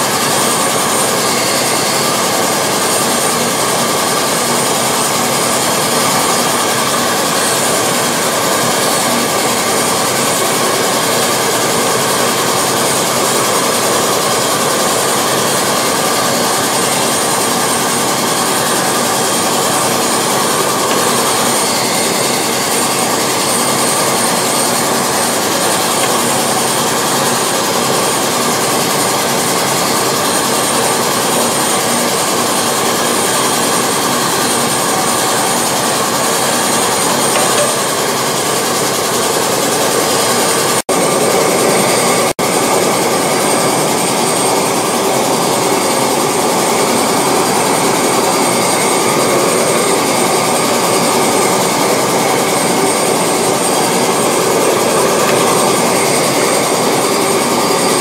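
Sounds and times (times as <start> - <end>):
furnace burner rushing: 0.0 - 58.0
faint high whine: 12.0 - 40.6.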